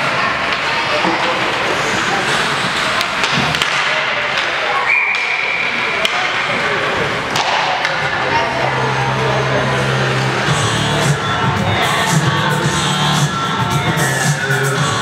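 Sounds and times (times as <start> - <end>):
crowd voices: 0.0 - 15.0
hockey sticks and puck knocking: 2.6 - 5.3, 6.0 - 6.5, 7.2 - 8.2
high whistle: 4.8 - 5.8.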